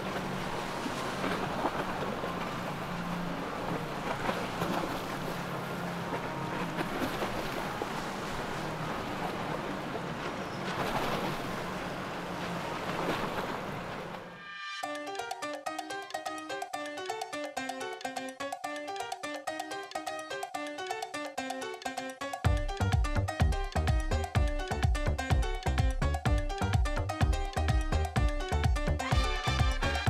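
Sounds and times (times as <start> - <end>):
water rushing and churning: 0.0 - 17.1, 22.4 - 30.0
outboard motors humming: 0.0 - 30.0.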